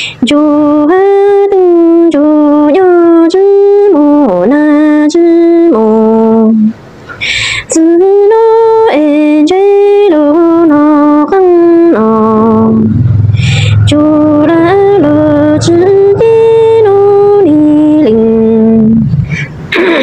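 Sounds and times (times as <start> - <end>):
woman singing solo: 7.8 - 19.1.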